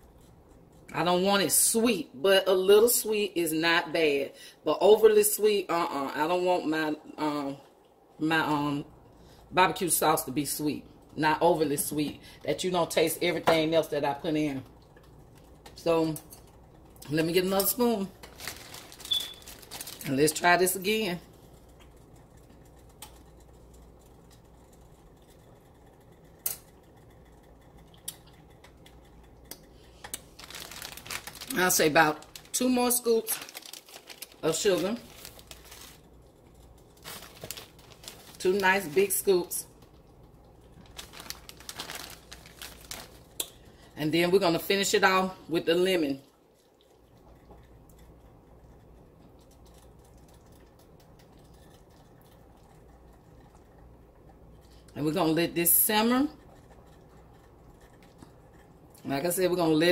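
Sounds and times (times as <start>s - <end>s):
low steady hum: 0.0s - 59.9s
spoon stirring thick sauce: 20.4s - 30.4s, 55.5s - 58.9s.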